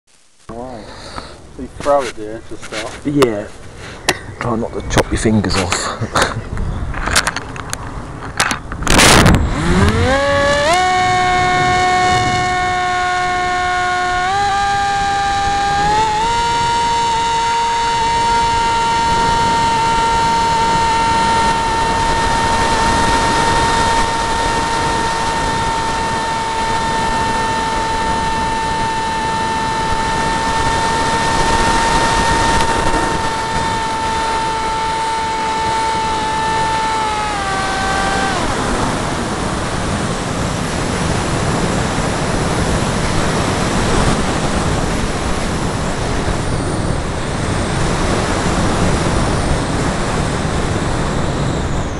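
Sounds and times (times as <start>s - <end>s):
rushing wind noise: 4.7s - 51.9s
electric motor whining: 8.4s - 51.9s.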